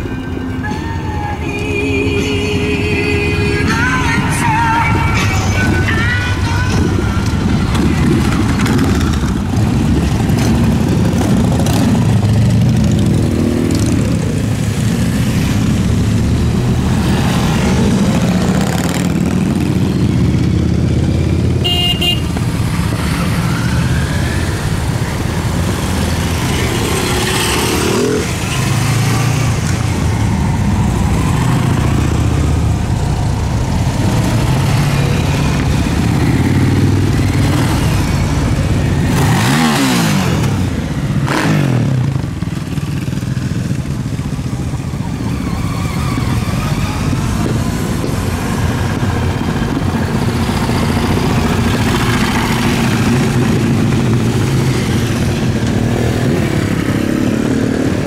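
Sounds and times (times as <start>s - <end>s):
motorcycles passing and revving: 0.0s - 58.0s
horn toot: 21.6s - 22.4s.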